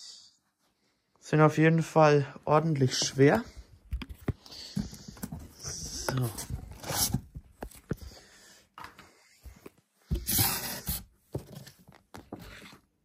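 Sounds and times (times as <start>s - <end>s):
cardboard rustling and scraping: 4.2s - 8.0s, 10.1s - 13.0s.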